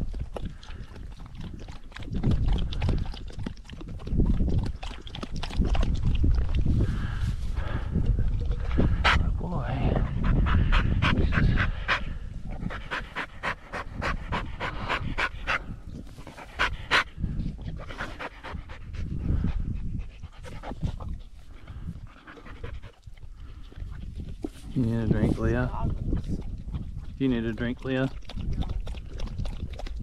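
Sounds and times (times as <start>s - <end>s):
dog panting hard: 6.8s - 24.4s.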